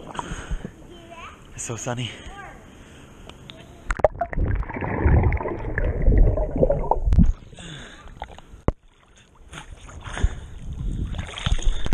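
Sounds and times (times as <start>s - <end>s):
water splashing: 3.9s - 10.4s, 11.0s - 11.9s
pool water sloshing: 4.1s - 11.9s.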